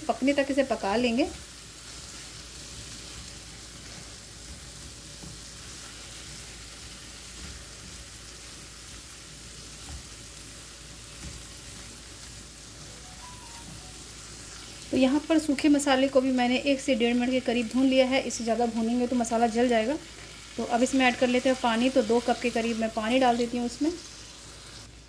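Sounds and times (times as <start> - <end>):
chicken sizzling in oil: 0.0 - 25.0.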